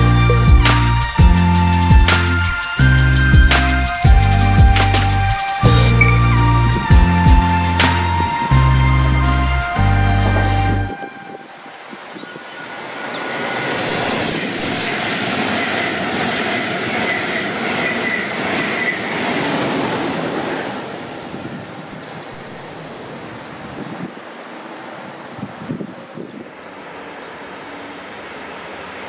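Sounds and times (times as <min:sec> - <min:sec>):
music: 0:00.0 - 0:11.5
train passing at high speed: 0:00.0 - 0:26.0, 0:26.6 - 0:29.0
thin high ringing tone: 0:07.6 - 0:14.2.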